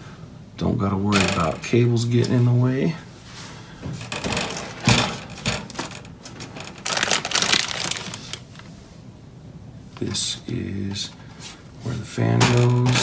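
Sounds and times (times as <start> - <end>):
plastic bag rustling: 3.2 - 8.8
cables clicking in metal case: 4.0 - 8.4.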